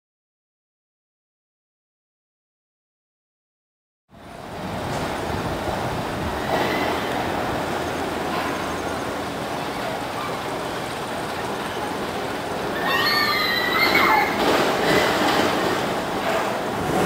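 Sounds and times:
white water rushing: 0:04.2 - 0:17.0.

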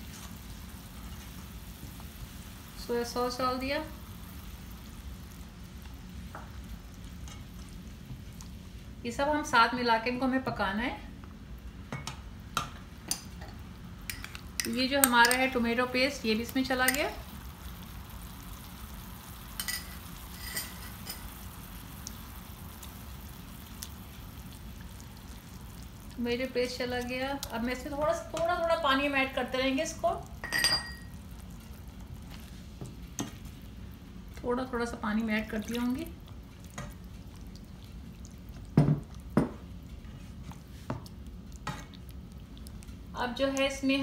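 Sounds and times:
sauce sizzling in a pan: 0:00.0 - 0:44.0.

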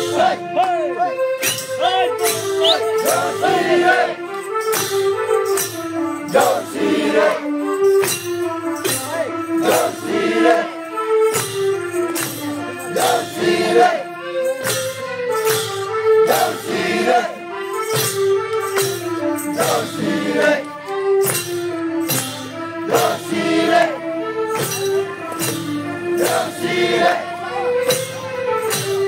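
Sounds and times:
group singing: 0:00.0 - 0:00.5, 0:02.6 - 0:04.3, 0:06.3 - 0:07.5, 0:09.6 - 0:10.8, 0:12.9 - 0:14.1, 0:16.3 - 0:17.5, 0:19.5 - 0:20.7, 0:22.8 - 0:24.0, 0:26.2 - 0:27.6
melody of held notes: 0:00.0 - 0:29.0
percussion striking: 0:00.0 - 0:29.0.

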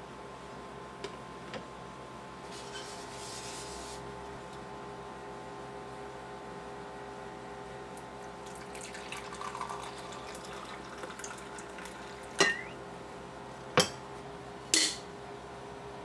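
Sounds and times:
coffee pouring into mug: 0:08.3 - 0:12.5.

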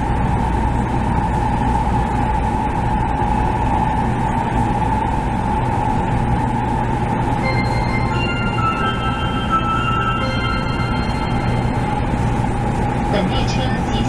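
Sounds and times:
high hum: 0:00.0 - 0:14.0
train cabin rumble: 0:00.0 - 0:14.0.

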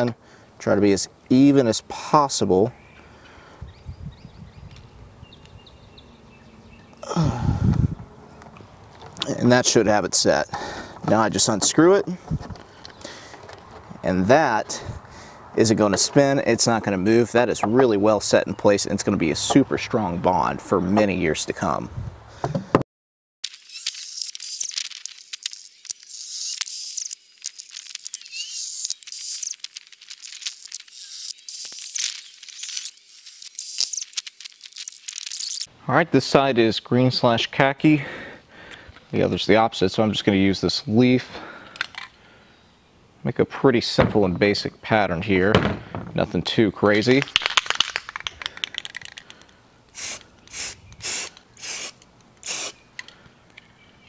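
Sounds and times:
spray paint bursts: 0:23.5 - 0:35.7, 0:49.9 - 0:52.8.

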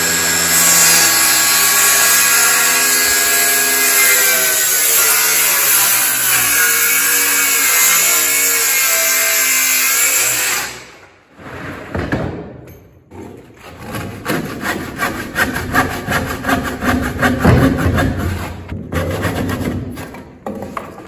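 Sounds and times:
circular saw cutting wood: 0:00.0 - 0:11.0, 0:13.6 - 0:19.6
hand saw strokes: 0:13.4 - 0:20.2.

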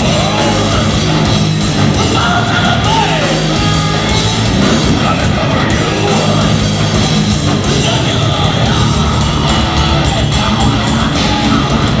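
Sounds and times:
distorted electric guitar: 0:00.0 - 0:12.0
drum and cymbal strikes: 0:00.0 - 0:12.0
metal band playing live: 0:00.0 - 0:12.0.

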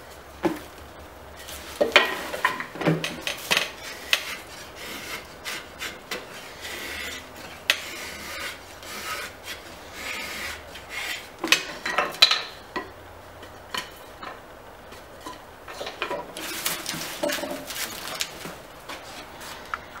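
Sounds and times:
drawknife scraping wood: 0:03.1 - 0:11.7.

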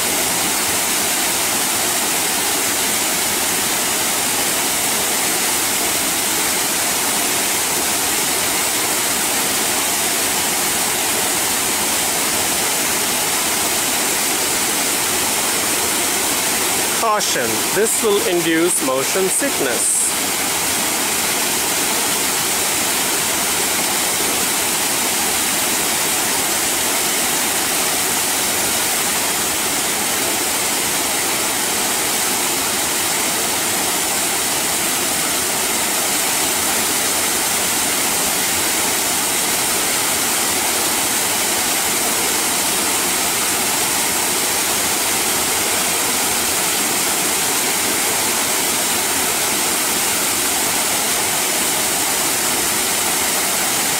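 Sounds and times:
small waterfall splashing: 0:00.0 - 0:53.9.

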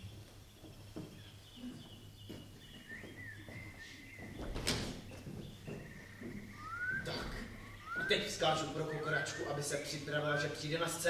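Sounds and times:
footsteps on wooden stage floor: 0:00.0 - 0:08.8.

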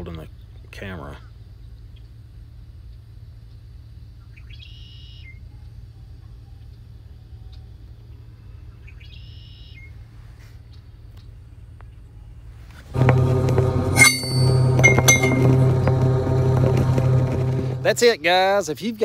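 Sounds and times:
steady low hum: 0:12.8 - 0:18.4.

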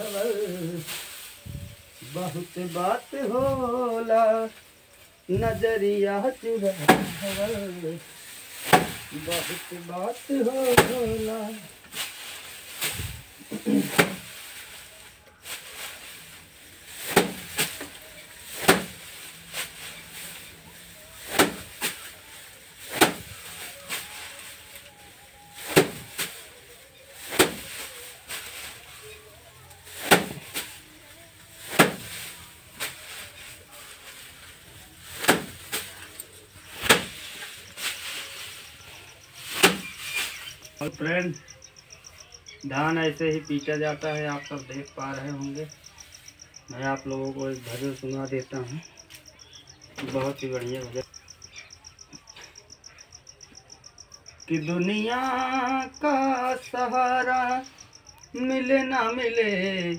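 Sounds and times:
straw rustling: 0:00.0 - 0:53.1
rice stalks hitting wooden plank: 0:06.5 - 0:20.5, 0:21.2 - 0:24.9, 0:25.6 - 0:29.2, 0:29.8 - 0:30.8, 0:31.6 - 0:41.0.

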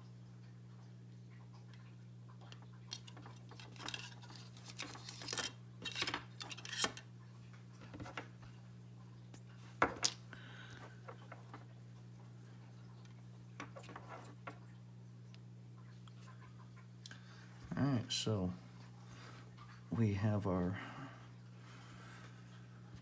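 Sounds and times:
steady low hum: 0:00.0 - 0:23.0
plastic and wire clicks and rustles: 0:02.4 - 0:07.0.

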